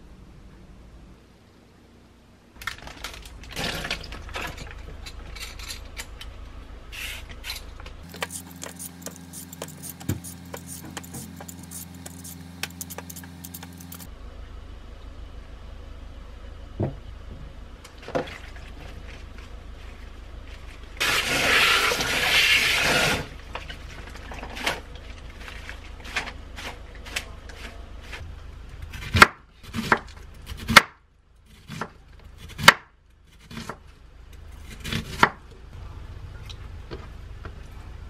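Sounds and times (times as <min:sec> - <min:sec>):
steady low hum: 0:00.0 - 0:21.1
peeler scraping a carrot: 0:08.0 - 0:14.1.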